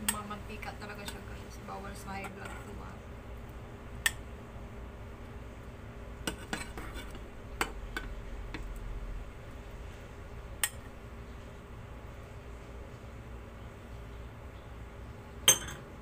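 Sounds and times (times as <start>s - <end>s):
metal spoon clinking on pan: 15.5s - 15.8s.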